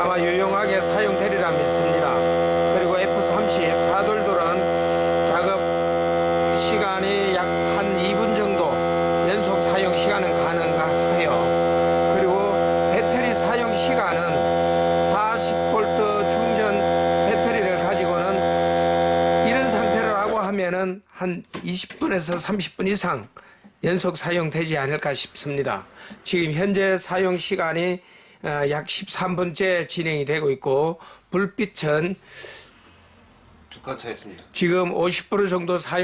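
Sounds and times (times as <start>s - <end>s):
air compressor humming: 0.0s - 20.6s, 25.0s - 26.7s.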